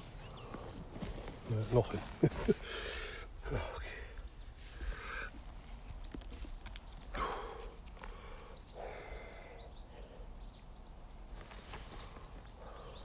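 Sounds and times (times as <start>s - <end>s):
hands rummaging in earth and rubble: 5.4s - 7.2s.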